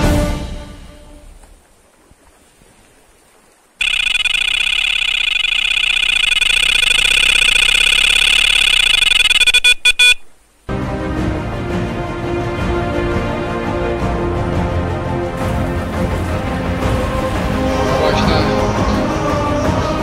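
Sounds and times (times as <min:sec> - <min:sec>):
bite alarm high-pitched beeps: 0:03.8 - 0:10.3.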